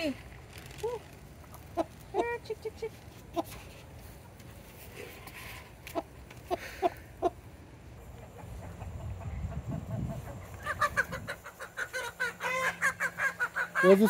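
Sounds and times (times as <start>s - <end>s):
hens clucking and squawking: 5.1s - 14.0s.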